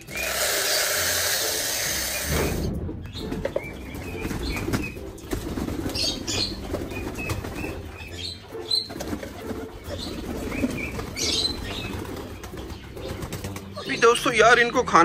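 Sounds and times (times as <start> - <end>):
pigeons flapping wings: 3.4 - 8.0, 8.7 - 13.9.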